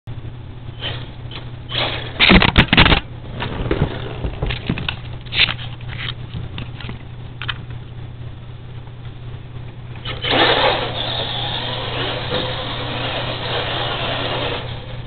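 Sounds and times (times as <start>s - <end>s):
scrapes and rattles: 0.8s - 7.6s.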